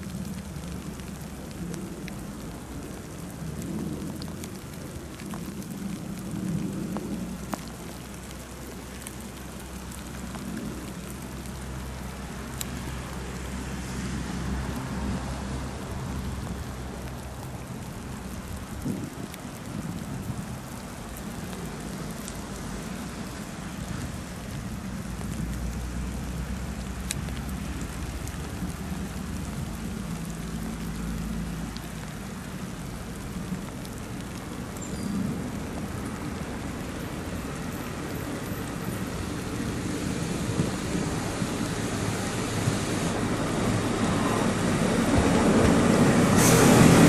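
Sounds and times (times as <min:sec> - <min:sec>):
rain hissing: 0:00.0 - 0:47.0
railcar engine drone: 0:37.7 - 0:47.0.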